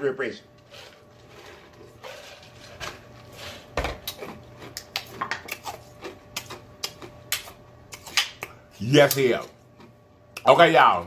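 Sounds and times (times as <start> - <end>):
mouth clicks and smacks: 4.7 - 8.6.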